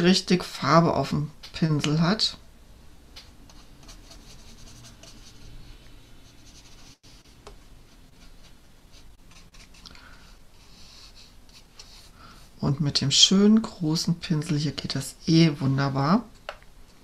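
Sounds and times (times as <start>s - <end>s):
paintbrush brushing on paper: 3.5s - 12.6s.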